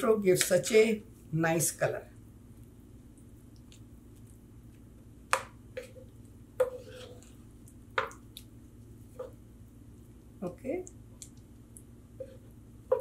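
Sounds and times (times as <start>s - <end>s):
spatula tapping pan: 5.3s - 7.2s, 8.0s - 8.2s
spatula stirring thick gravy: 5.7s - 10.2s.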